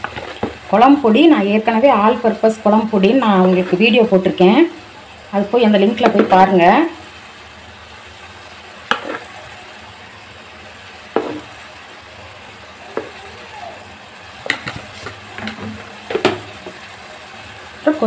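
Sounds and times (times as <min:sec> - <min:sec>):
food sizzling in oil: 0:00.0 - 0:18.0
spoon tapping against pan: 0:14.4 - 0:14.8.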